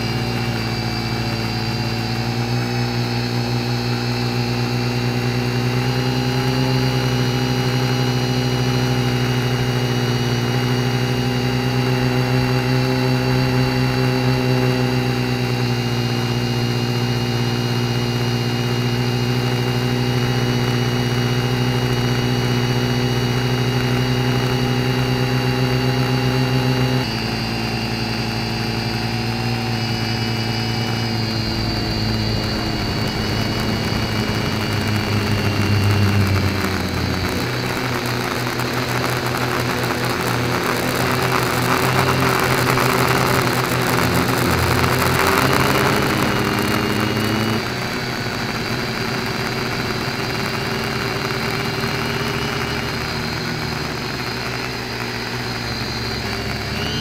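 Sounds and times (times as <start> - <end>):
drone motors whining: 0.0 - 57.0
rough air rush: 29.3 - 47.4.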